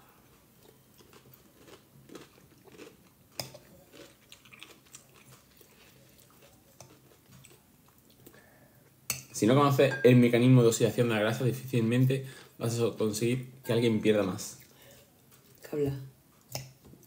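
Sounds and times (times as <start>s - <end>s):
chewing and crunching salad: 0.2s - 8.4s.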